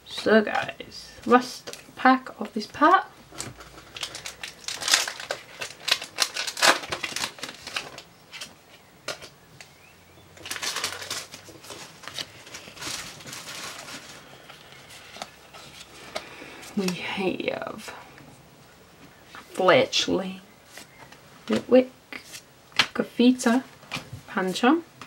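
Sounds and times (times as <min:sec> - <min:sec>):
cards rustling: 0:03.3 - 0:09.7, 0:10.4 - 0:17.1
foil wrapper crinkling and tearing: 0:03.4 - 0:08.5, 0:10.4 - 0:16.1.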